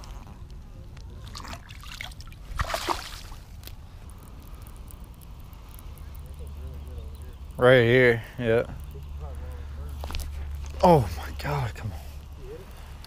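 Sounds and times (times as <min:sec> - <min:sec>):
shallow water sloshing: 0:01.2 - 0:03.7
water splash: 0:01.3 - 0:03.4.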